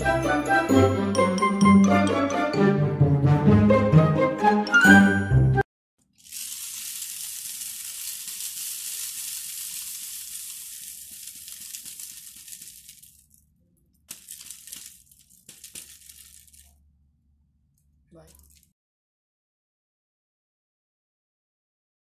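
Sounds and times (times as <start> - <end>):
rain stick trickling: 6.0 - 16.8, 18.2 - 18.7.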